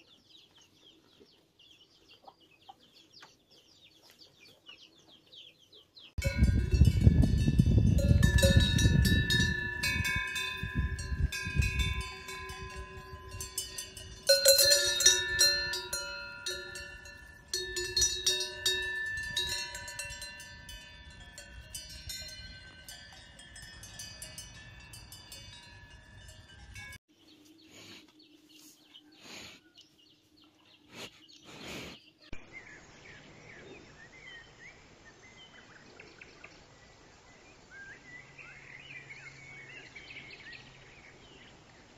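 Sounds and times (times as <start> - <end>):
low wind rumble: 6.2 - 22.9
cowbells clanking and ringing: 6.2 - 27.0.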